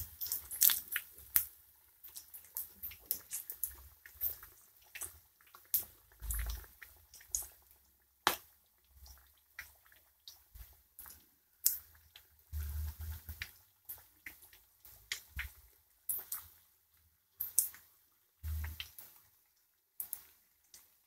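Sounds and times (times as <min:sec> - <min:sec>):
oil crackling and popping: 0:00.0 - 0:16.6.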